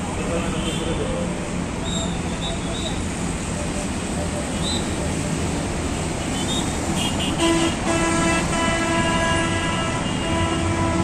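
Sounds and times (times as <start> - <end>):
locomotive air horn: 7.0 - 11.0.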